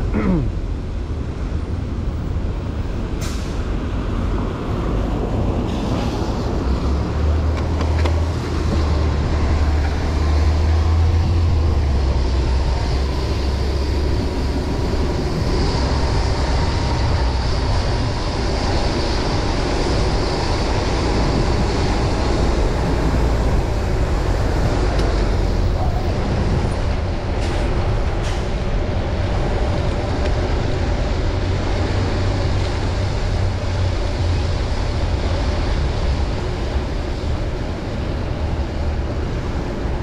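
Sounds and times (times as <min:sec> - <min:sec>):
passing traffic: 0:00.0 - 0:40.0
wind rumble on microphone: 0:00.0 - 0:40.0
hiss of wet road: 0:03.2 - 0:03.8, 0:05.6 - 0:06.7.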